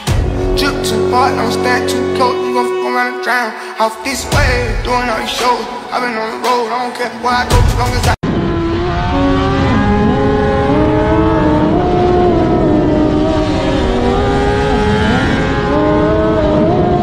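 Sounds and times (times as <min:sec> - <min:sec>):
wind and road noise: 0:08.2 - 0:17.0
motorcycle engine running hard: 0:08.3 - 0:17.0.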